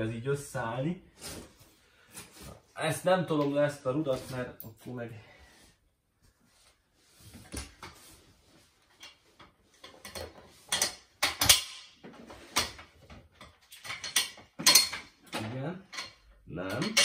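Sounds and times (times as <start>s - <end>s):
metal parts clinking and knocking: 9.8s - 12.0s, 13.4s - 17.0s.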